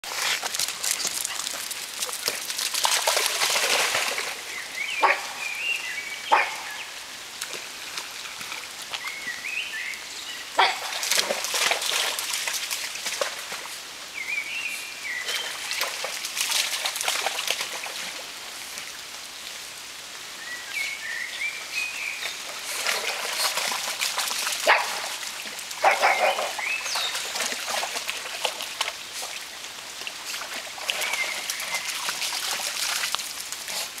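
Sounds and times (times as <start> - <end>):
dogs splashing in water: 0.0 - 5.3, 10.6 - 13.7, 15.3 - 18.4, 22.2 - 34.0.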